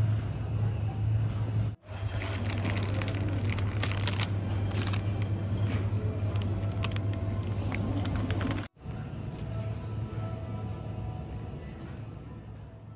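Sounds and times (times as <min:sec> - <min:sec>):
refrigerated display cases humming: 0:00.0 - 0:12.9
plastic food packs crinkling: 0:01.9 - 0:08.7.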